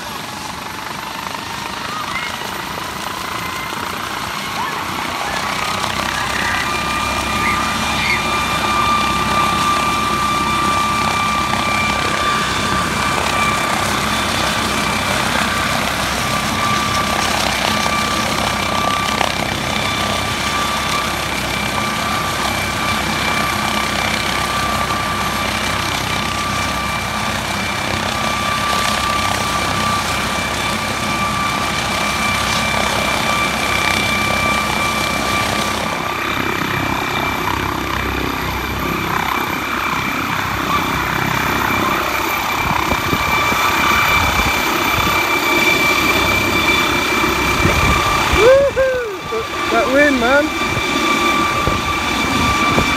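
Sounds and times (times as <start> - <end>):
helicopter rotor noise: 0.0 - 52.9
helicopter turbine whine: 0.0 - 52.9.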